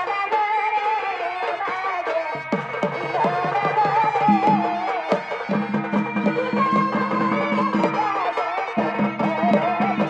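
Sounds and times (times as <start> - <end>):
drum strokes: 2.2 - 10.0.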